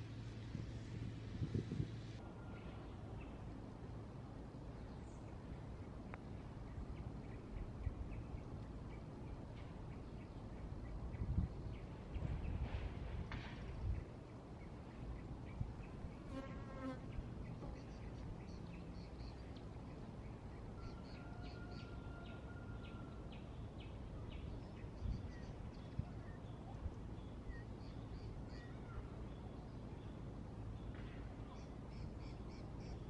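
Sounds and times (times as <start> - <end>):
wind rumble on microphone: 0.0 - 2.2, 6.0 - 16.3, 23.5 - 29.1
birds calling: 13.8 - 33.0.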